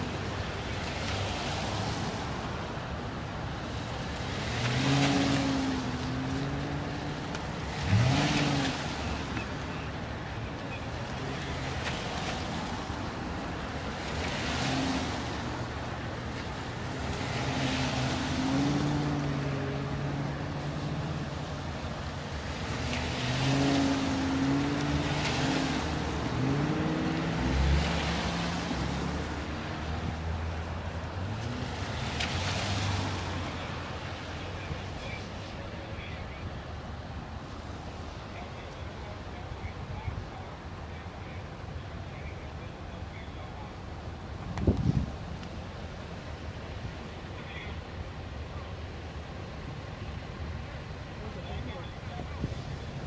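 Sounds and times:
car engines running: 0.0 - 53.0.

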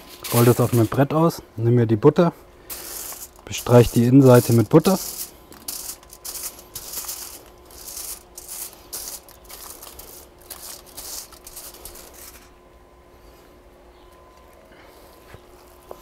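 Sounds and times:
foil rustling and crinkling: 0.0 - 1.1, 2.6 - 12.5, 15.0 - 16.0.

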